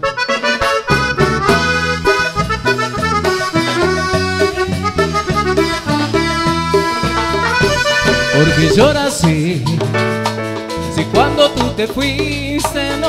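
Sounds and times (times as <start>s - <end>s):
steady bass beat: 0.0s - 10.0s
live band with accordion: 0.0s - 13.0s.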